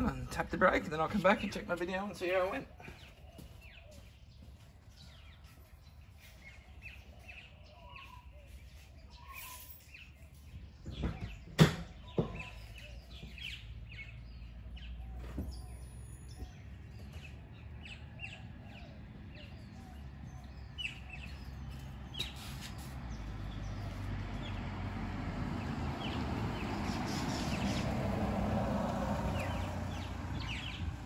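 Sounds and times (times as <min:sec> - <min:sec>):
birds chirping: 0:00.0 - 0:31.0.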